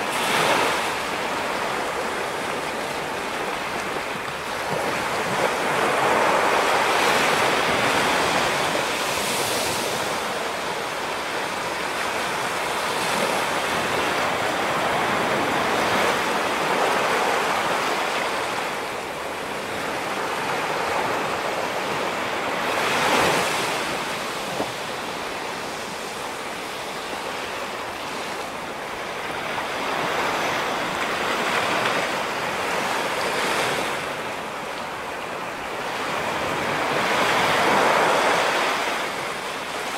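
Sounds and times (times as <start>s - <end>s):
ocean waves breaking on rocks: 0.0s - 39.9s.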